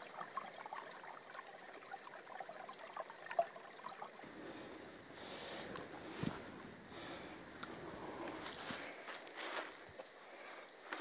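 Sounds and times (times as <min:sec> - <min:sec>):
stream trickling over rocks: 0:00.0 - 0:04.3.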